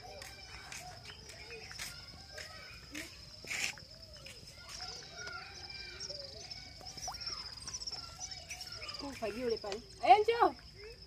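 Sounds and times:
insects chirring: 0:00.0 - 0:11.0.

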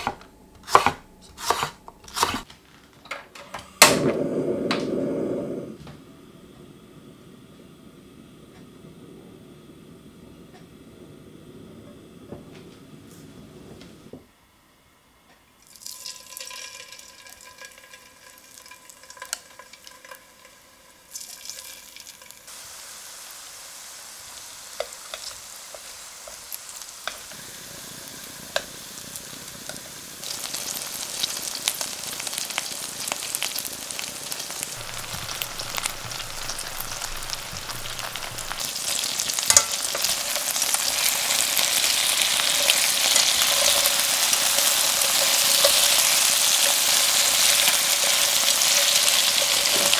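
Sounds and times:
meat sizzling in a pan: 0:15.6 - 0:49.9
utensils clicking against pan: 0:39.5 - 0:40.4.

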